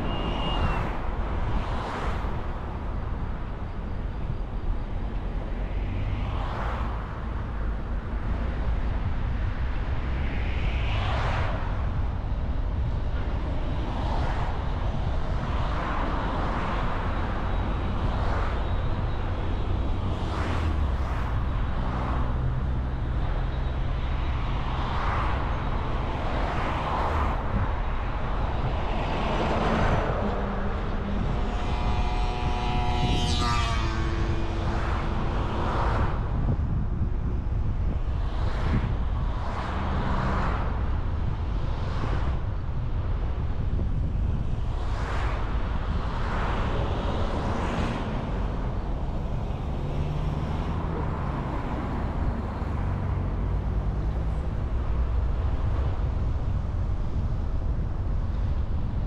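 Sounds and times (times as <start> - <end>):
tyre and wind rumble: 0.0 - 59.0
vehicles whooshing by: 0.0 - 59.0
passing vehicle engine: 28.5 - 37.1, 44.8 - 57.4.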